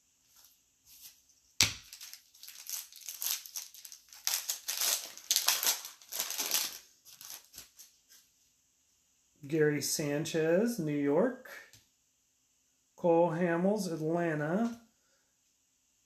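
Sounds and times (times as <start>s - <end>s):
plastic wrapper crinkling: 1.7s - 8.0s.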